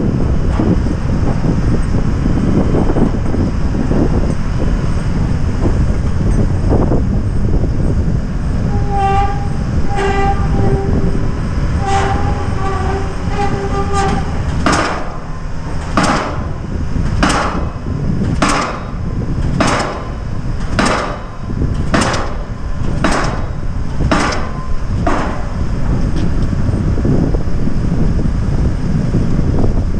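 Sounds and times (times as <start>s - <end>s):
low steady rumble: 0.0s - 29.9s
pile-driving hammer blows: 8.8s - 26.4s.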